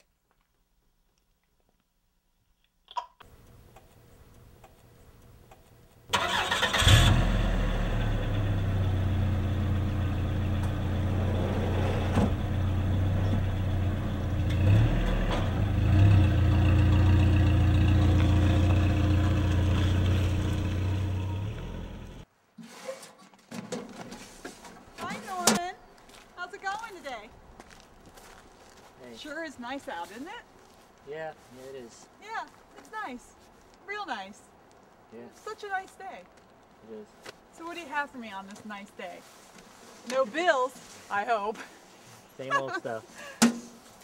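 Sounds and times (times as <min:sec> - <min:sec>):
truck engine humming: 0:03.3 - 0:22.2.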